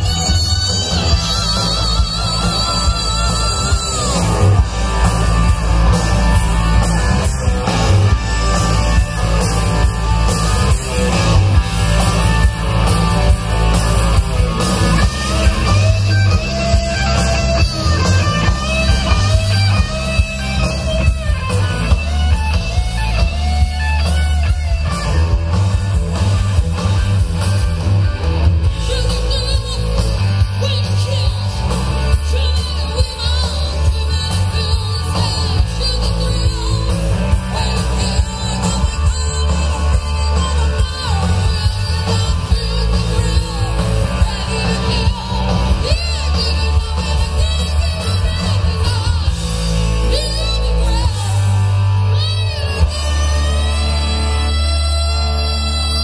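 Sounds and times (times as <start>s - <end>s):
drums: 0.0s - 56.0s
electric guitars: 0.0s - 56.0s.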